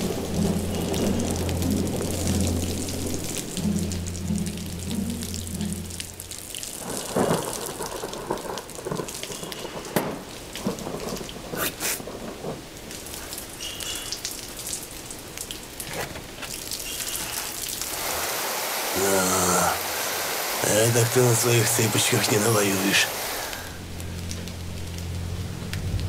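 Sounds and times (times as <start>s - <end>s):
thunder cracks: 0.0s - 5.9s, 6.8s - 13.5s
steady rain: 0.0s - 26.0s.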